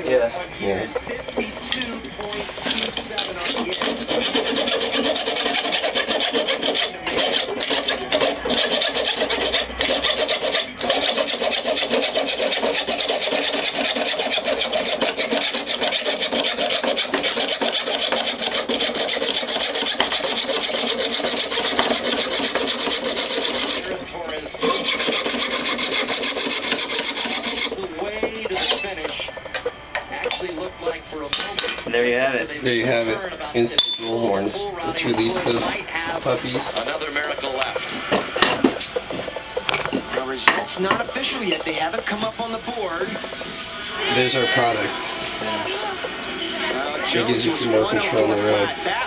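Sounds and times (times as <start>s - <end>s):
hacksaw sawing through metal: 2.8s - 24.0s, 24.6s - 27.8s.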